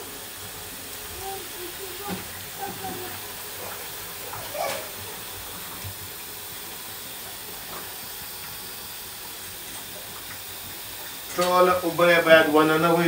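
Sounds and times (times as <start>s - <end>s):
water pouring into colander: 0.0s - 13.0s.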